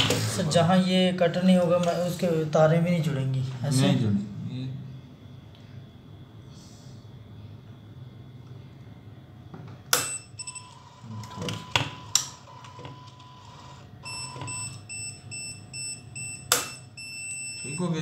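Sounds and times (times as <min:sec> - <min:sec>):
electronic beeps: 0:10.0 - 0:18.0.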